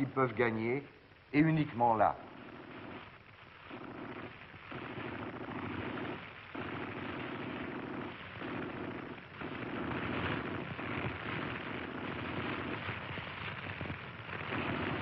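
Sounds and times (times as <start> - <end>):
automatic gunfire: 3.7 - 15.0.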